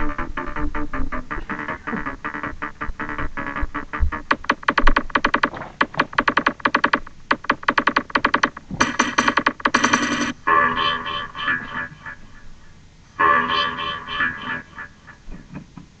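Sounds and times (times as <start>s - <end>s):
techno synthesizer chord stabs: 0.0s - 12.2s.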